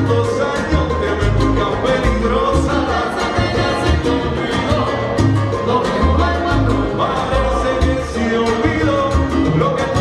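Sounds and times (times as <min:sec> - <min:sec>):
people singing: 0:00.0 - 0:10.0
salsa band playing live: 0:00.0 - 0:10.0.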